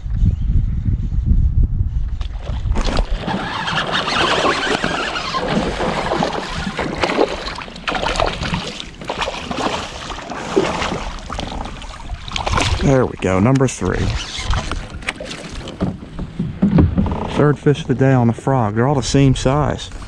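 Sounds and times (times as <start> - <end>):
wind rumble on microphone: 0.0 - 8.8, 9.6 - 20.0
fish splashing at water surface: 2.8 - 12.9.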